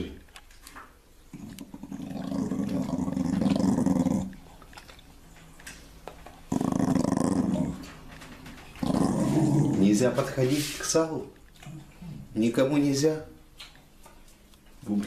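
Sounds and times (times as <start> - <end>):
dog growling: 1.3 - 4.9, 6.5 - 10.2.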